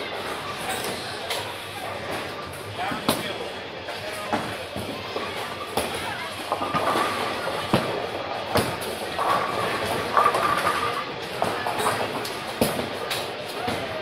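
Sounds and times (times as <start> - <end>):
balls and pins clattering: 4.2 - 13.9.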